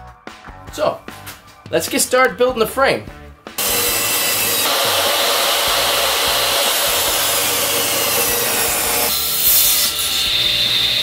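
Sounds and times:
table saw cutting wood: 0:03.6 - 0:11.0.

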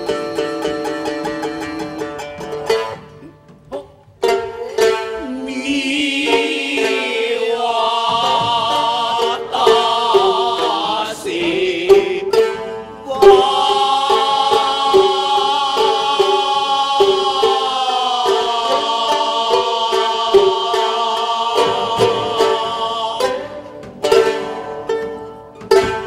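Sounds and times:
shamisen plucks: 0:00.0 - 0:26.0
chanting voice with wavering notes: 0:05.0 - 0:23.8.

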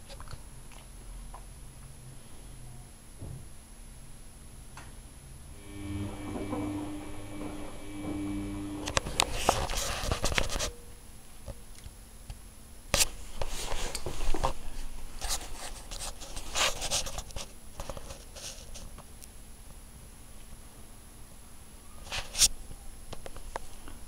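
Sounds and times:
washing machine motor hum: 0:05.4 - 0:10.6.

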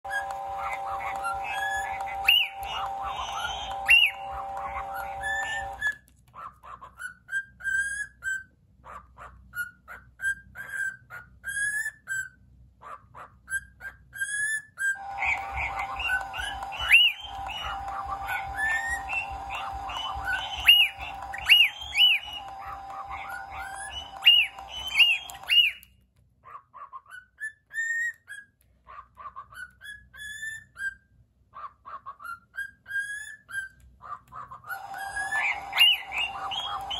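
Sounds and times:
toy humming tone: 0:00.0 - 0:05.9, 0:15.0 - 0:25.8, 0:34.8 - 0:36.9
cockatiel chirping and whistling: 0:00.1 - 0:12.4, 0:13.5 - 0:25.9, 0:26.5 - 0:28.6, 0:29.2 - 0:31.0, 0:31.9 - 0:36.9.

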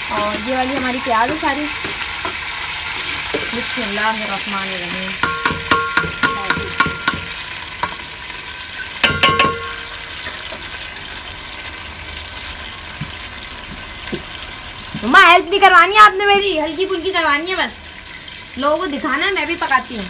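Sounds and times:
onions sizzling in hot oil: 0:00.0 - 0:20.0
spoon tapping metal colander: 0:05.2 - 0:08.0, 0:09.0 - 0:09.9.

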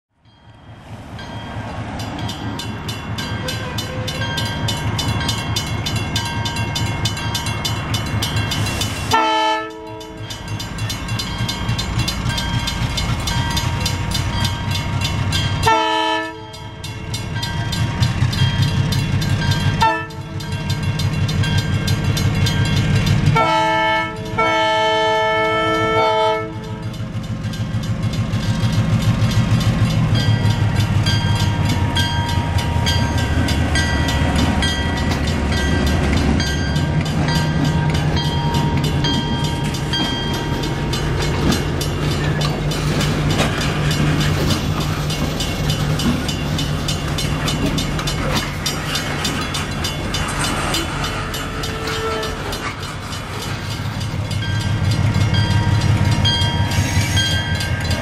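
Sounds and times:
locomotive air horn blasts: 0:09.1 - 0:10.2, 0:15.6 - 0:16.6, 0:19.8 - 0:20.4, 0:23.4 - 0:26.8, 0:51.5 - 0:52.5.

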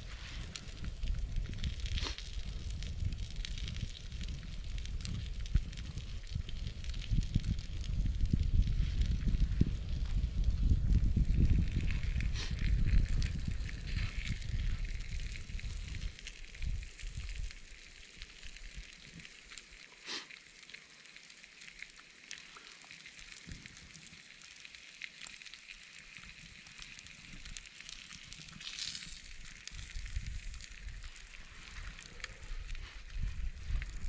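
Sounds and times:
campfire crackling: 0:00.0 - 0:34.0
sharp pop from fire: 0:01.9 - 0:02.3.

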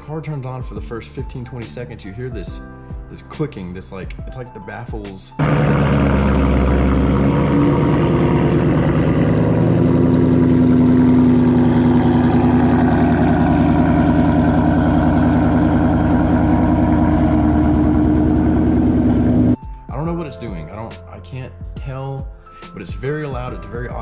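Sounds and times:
exhaust valves clicking: 0:05.4 - 0:19.5
car engine idling loudly: 0:05.4 - 0:19.6.

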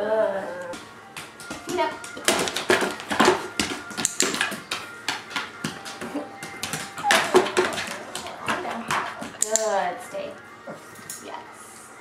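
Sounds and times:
dog paws tapping plastic tray: 0:00.8 - 0:09.9
dog claws clicking on hardwood floor: 0:01.4 - 0:09.8.

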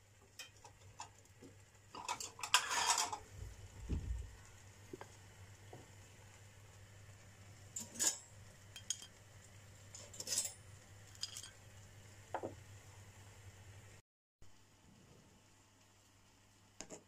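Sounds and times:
tongs clinking on toaster and plate: 0:00.4 - 0:01.2, 0:01.9 - 0:03.2, 0:07.8 - 0:09.2, 0:09.9 - 0:11.6.

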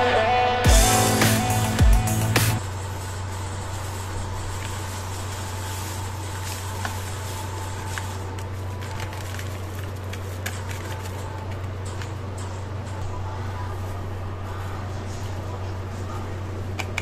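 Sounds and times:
foil sachet crinkling: 0:02.6 - 0:12.0.

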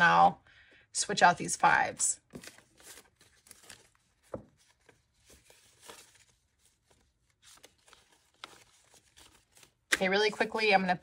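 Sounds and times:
paper banknotes rustling: 0:02.2 - 0:10.7.

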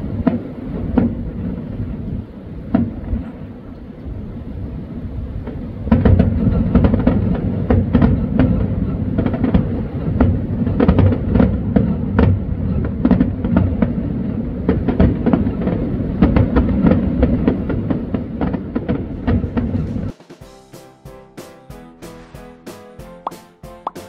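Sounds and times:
fireworks booming and crackling: 0:00.0 - 0:20.8
low rumble: 0:18.0 - 0:20.1.

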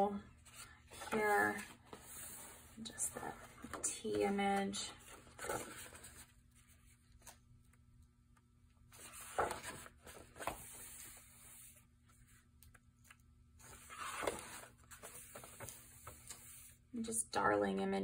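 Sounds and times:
heavy paper rustling: 0:00.4 - 0:06.4, 0:08.9 - 0:11.8, 0:13.6 - 0:16.7.

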